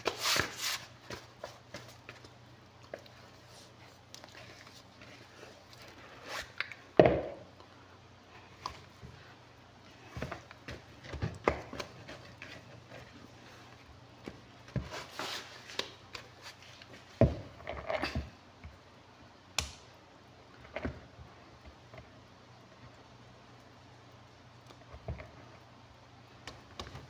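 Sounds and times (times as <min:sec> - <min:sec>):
dough being kneaded by hand: 0:00.0 - 0:19.0, 0:19.6 - 0:27.0.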